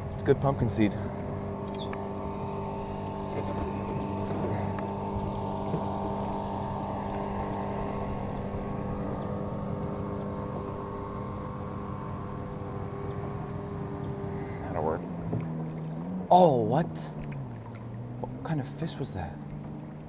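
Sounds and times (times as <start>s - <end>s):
motorboat engine running: 0.0s - 20.0s
water noise: 0.0s - 20.0s.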